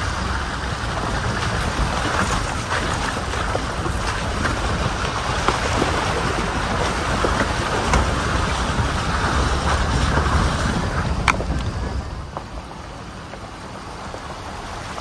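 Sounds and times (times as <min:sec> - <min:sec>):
water splashing: 0:00.0 - 0:11.8
engine and tyre rumble: 0:00.0 - 0:15.0.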